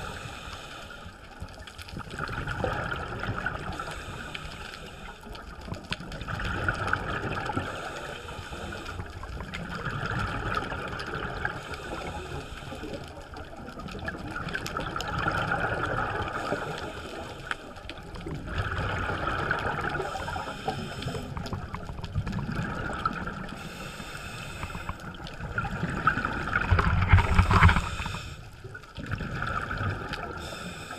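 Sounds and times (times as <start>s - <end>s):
scuba regulator breathing: 0.0s - 1.5s, 3.6s - 5.6s, 7.6s - 9.3s, 11.5s - 13.2s, 16.2s - 18.2s, 19.9s - 21.8s, 23.4s - 28.9s, 30.2s - 30.9s
exhaled bubbles underwater: 1.2s - 30.9s.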